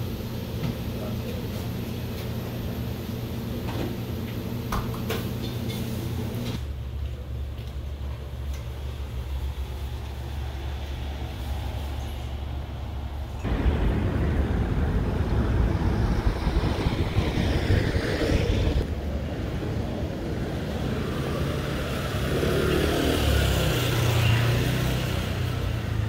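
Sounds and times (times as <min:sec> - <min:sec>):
street traffic rumble: 0:00.0 - 0:26.0
vehicle engine hum passing: 0:08.9 - 0:26.0.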